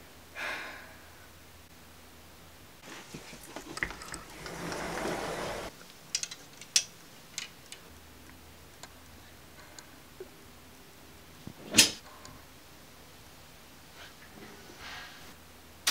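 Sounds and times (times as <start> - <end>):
sliding closet door rolling: 3.7 - 5.7.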